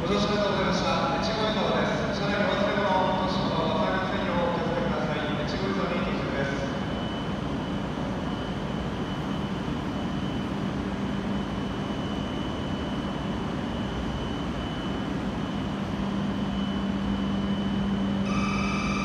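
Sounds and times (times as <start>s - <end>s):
faint high whine: 0.0s - 19.0s
train equipment humming: 12.7s - 19.0s.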